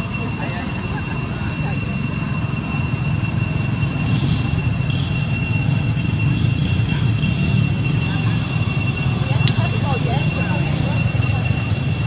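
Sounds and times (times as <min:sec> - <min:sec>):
high-pitched whine: 0:00.0 - 0:12.0.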